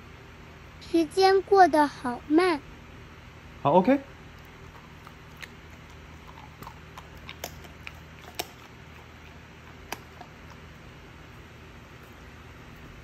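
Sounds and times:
faint low hum: 0:00.0 - 0:13.0
dog chewing jerky: 0:04.4 - 0:12.2.

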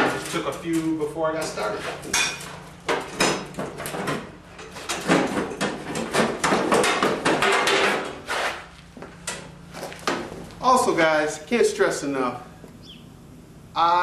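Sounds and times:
metal fender knocking and rattling: 0:01.4 - 0:08.2.

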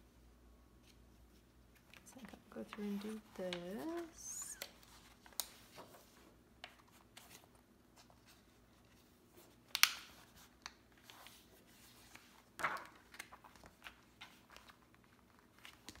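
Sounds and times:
paper rustling: 0:00.8 - 0:16.0
paper crinkle: 0:10.2 - 0:16.0.

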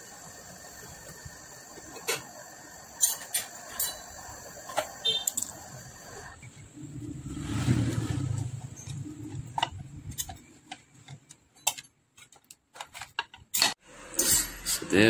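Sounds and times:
low rumble: 0:06.4 - 0:10.4.

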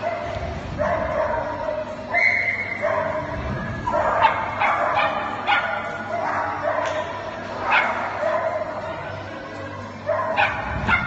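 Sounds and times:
dog yipping: 0:00.0 - 0:07.1.

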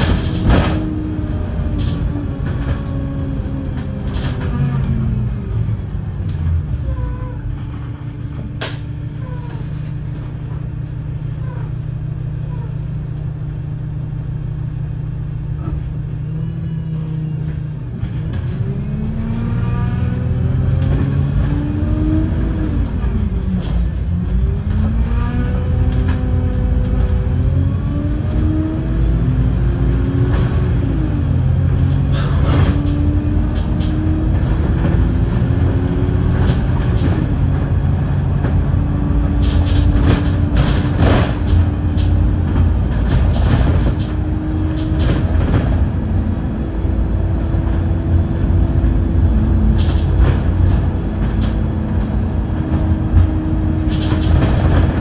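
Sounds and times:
bus drivetrain whine: 0:00.0 - 0:55.0
heavy road rumble: 0:00.0 - 0:55.0
sharp knocks and rattles: 0:31.8 - 0:46.0, 0:47.6 - 0:55.0.

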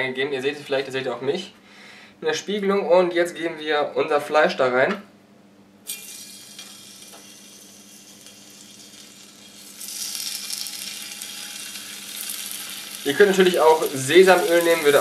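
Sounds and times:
chicken sizzling in frying pan oil: 0:05.9 - 0:15.0.

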